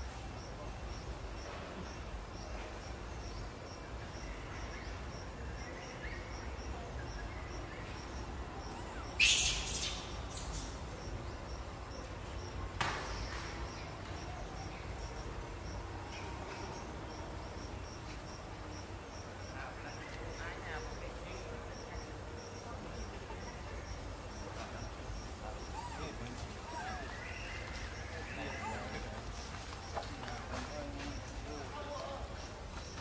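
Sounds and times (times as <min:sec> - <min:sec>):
faint high insect chirp: 0:00.0 - 0:33.0.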